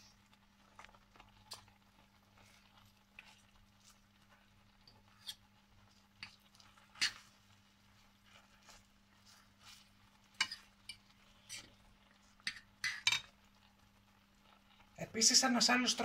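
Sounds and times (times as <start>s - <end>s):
fork clicking on a frying pan: 7.0s - 7.2s, 12.4s - 13.3s.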